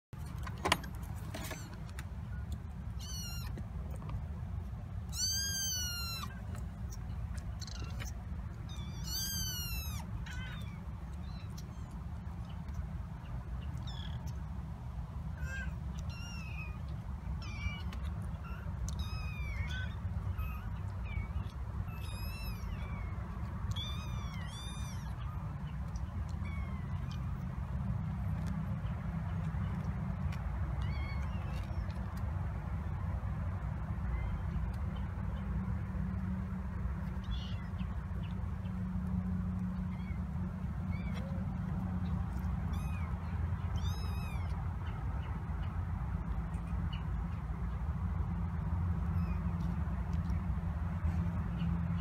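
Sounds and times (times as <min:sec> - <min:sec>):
kittens mewing: 0:03.0 - 0:03.6, 0:05.1 - 0:06.6, 0:07.6 - 0:11.6, 0:15.3 - 0:25.6, 0:42.6 - 0:44.6.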